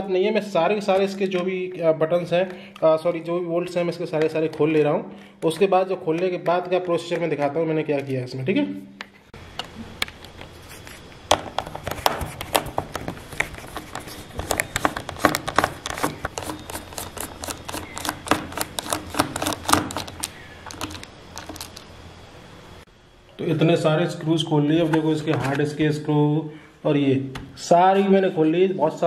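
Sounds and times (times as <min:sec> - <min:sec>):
screwdriver clicking on screws: 0:14.4 - 0:21.8.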